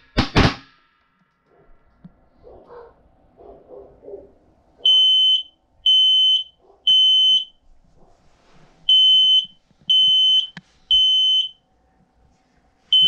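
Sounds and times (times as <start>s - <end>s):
smoke alarm beeping: 4.8s - 7.6s, 8.9s - 11.6s.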